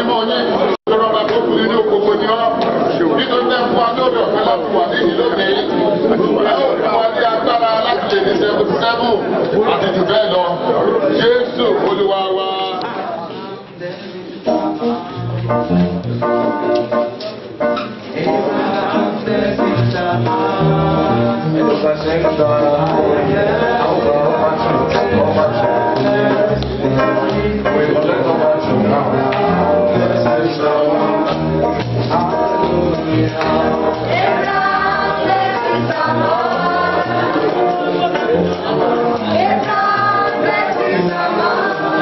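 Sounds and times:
gospel singing: 0:00.0 - 0:13.1, 0:14.5 - 0:42.0
instrumental backing: 0:14.2 - 0:42.0
band playing: 0:14.5 - 0:42.0.

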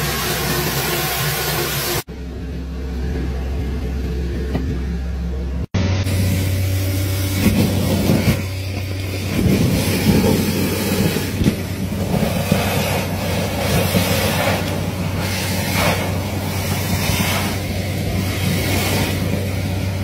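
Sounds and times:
suction hose drone: 0:00.0 - 0:20.0
debris rattling through hose: 0:06.1 - 0:20.0.

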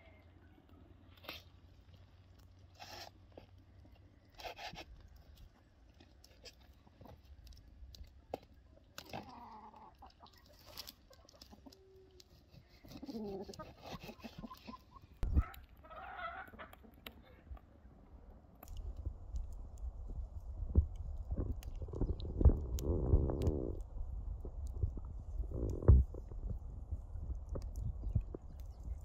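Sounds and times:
chickens clucking faintly: 0:09.0 - 0:17.9.

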